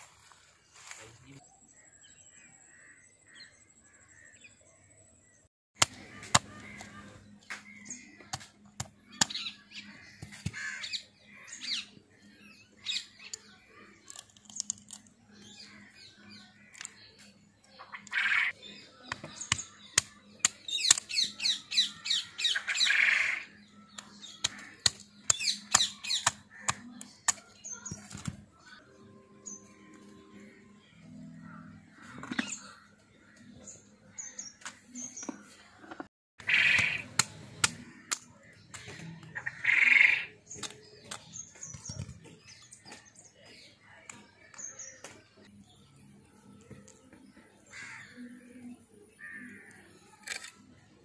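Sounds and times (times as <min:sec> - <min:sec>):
snail shells cracking: 0:14.0 - 0:15.1.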